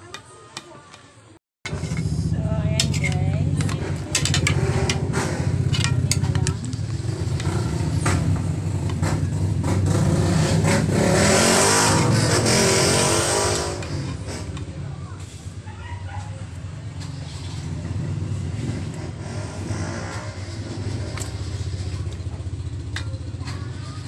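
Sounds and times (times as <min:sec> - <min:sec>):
low engine-like hum: 0:01.7 - 0:10.3, 0:13.8 - 0:24.0
cooking pot clicks and knocks: 0:02.8 - 0:06.6.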